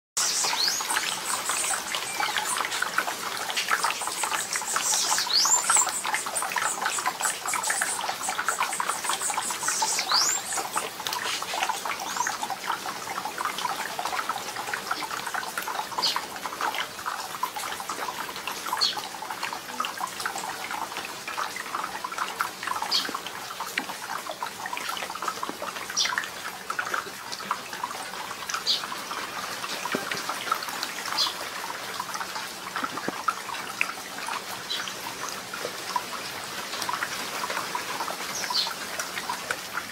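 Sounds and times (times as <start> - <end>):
bird calls and chirps: 0.2 - 2.9, 3.5 - 12.4
rain dripping on leaves: 0.2 - 39.9.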